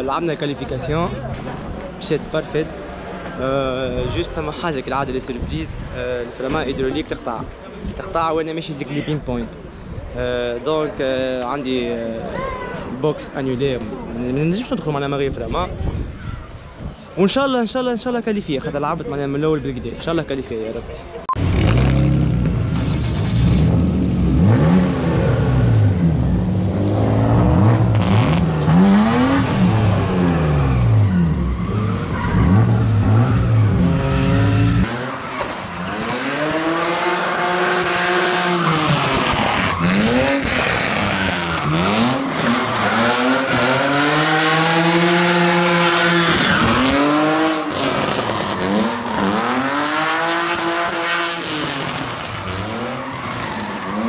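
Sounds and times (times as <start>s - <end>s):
car engines revving: 21.4s - 54.0s.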